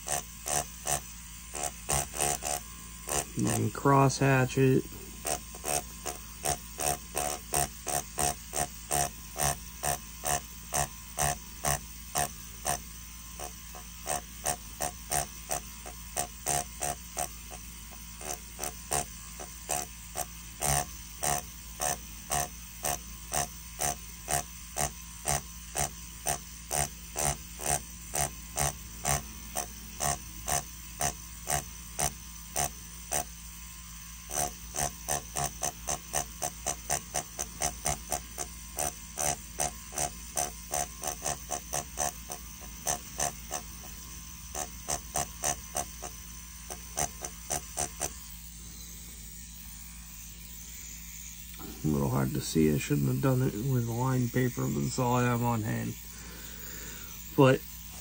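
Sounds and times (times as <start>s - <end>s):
tattoo pen motor hum: 0.0s - 58.0s.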